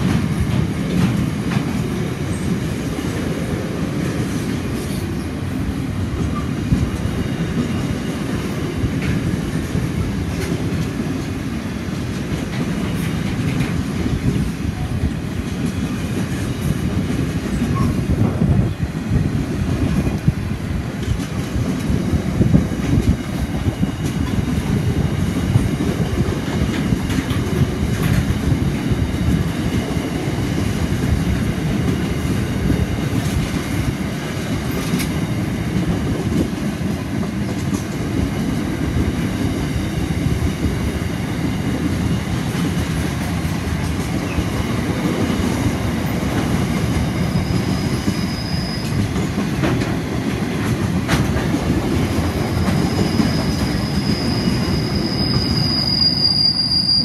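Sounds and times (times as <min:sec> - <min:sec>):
freight train rumbling past: 0:00.0 - 0:57.0
wheels clicking over rail joints: 0:12.0 - 0:18.4, 0:48.8 - 0:55.4
high wheel squeal: 0:47.0 - 0:49.0, 0:52.5 - 0:57.0.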